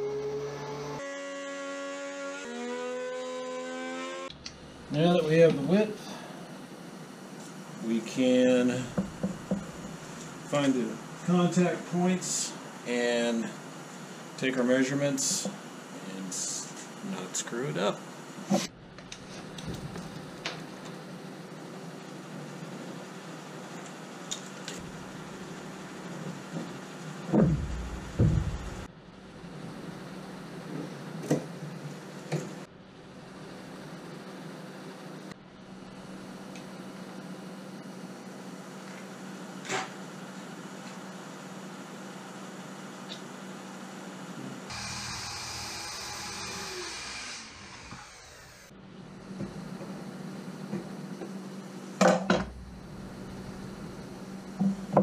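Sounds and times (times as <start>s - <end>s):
steady shop hum: 0.0s - 55.0s
circular saw spinning down: 44.7s - 48.7s.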